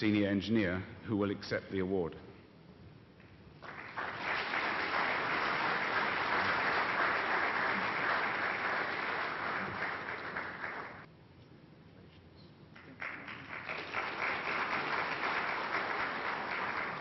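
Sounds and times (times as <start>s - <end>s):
audience applauding: 3.6s - 11.1s, 12.8s - 17.0s.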